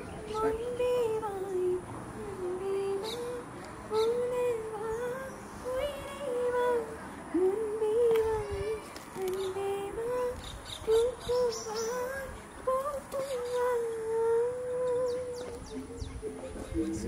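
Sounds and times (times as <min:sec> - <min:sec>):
birds chirping: 0:09.2 - 0:17.0.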